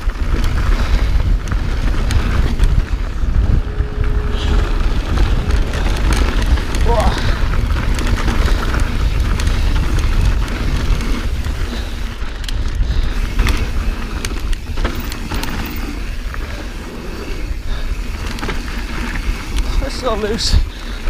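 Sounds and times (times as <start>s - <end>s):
bike clicks and rattles: 0.0s - 21.0s
bike rolling over dirt trail: 0.0s - 21.0s
wind rumbling on microphone: 0.0s - 21.0s.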